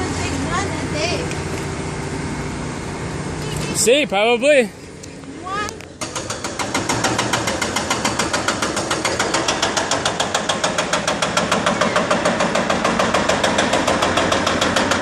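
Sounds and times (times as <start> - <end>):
machine engine running: 5.8 - 15.0
hydraulic breaker hammering concrete: 6.0 - 15.0.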